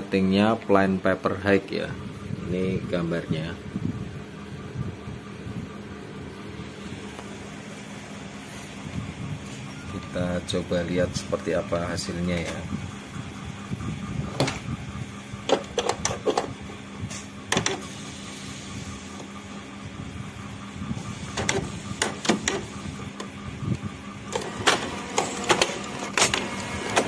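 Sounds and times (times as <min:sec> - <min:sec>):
printer motor hum: 0:01.8 - 0:27.0
printer mechanical clicks: 0:17.5 - 0:18.0, 0:21.2 - 0:27.0.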